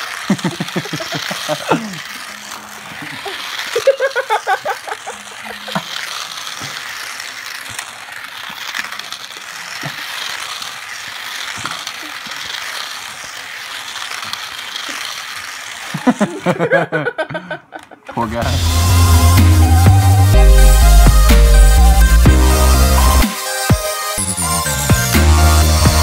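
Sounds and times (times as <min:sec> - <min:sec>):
small clicks: 0:00.0 - 0:16.0
small electric motors whirring: 0:00.0 - 0:16.6, 0:18.1 - 0:26.0
toy cars rattling on plastic track: 0:00.0 - 0:16.6.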